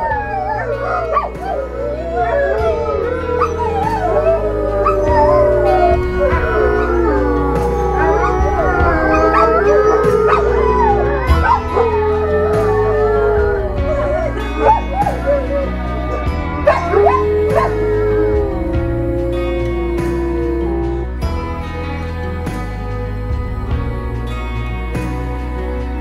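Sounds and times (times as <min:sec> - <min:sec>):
wolf and dogs howling: 0:00.0 - 0:25.8.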